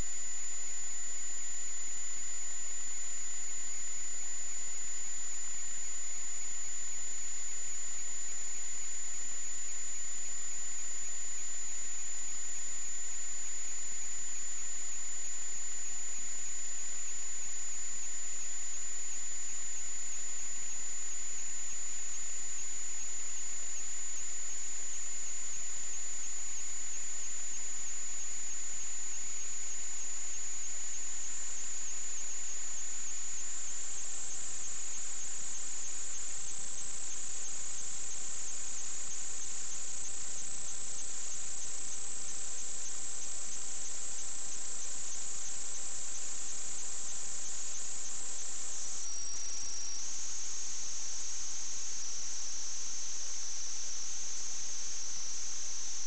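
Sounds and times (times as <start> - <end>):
constant hiss: 0.0 - 56.0.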